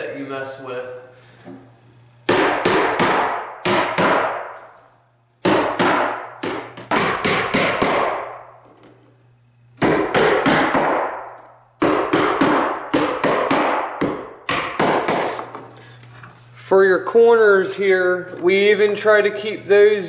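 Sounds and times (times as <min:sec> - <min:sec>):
hammer striking nails into wood: 0:02.3 - 0:04.6, 0:05.4 - 0:08.4, 0:09.8 - 0:15.5.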